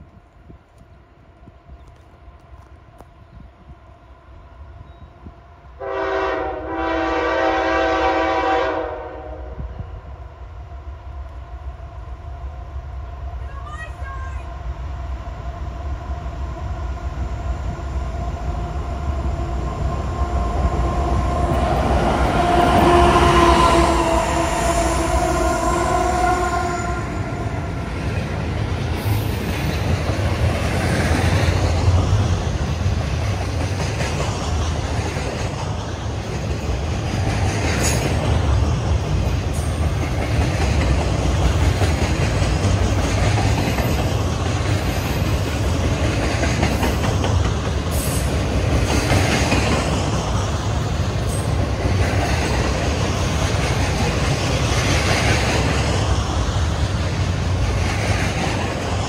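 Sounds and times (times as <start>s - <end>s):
train rumble: 0.0s - 59.0s
train horn chord: 5.8s - 9.9s, 22.3s - 27.8s.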